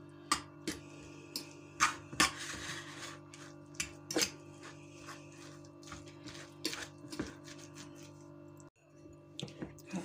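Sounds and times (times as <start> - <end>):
fork scraping bowl: 1.8 - 8.3.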